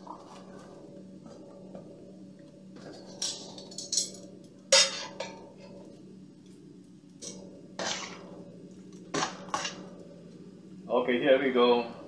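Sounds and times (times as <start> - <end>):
metal tongs clinking on steel bowl: 3.2 - 5.4.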